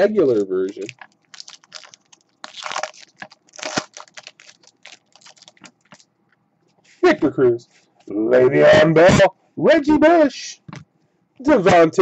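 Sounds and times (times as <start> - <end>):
foil wrapper crinkling: 0.2 - 6.1.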